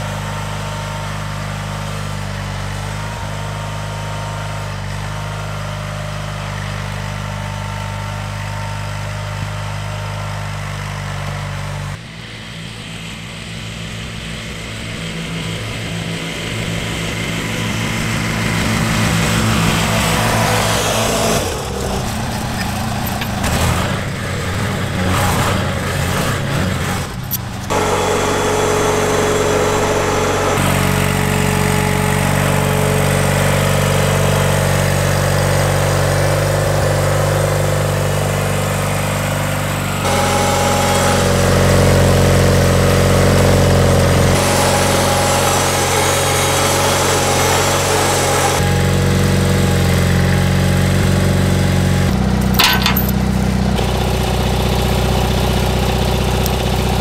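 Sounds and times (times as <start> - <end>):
lawn tractor engine running: 0.0 - 57.0
knocks and rattles: 52.4 - 53.2.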